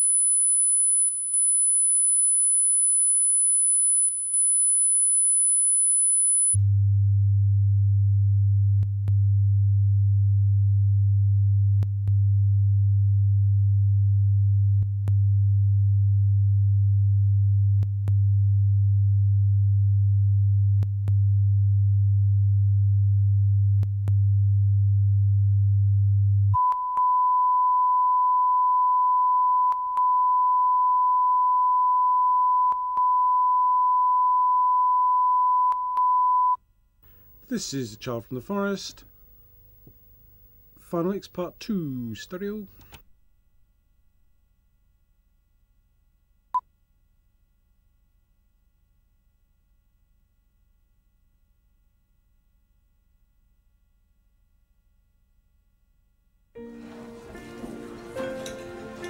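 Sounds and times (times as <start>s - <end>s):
low steady test tone: 6.4s - 38.8s.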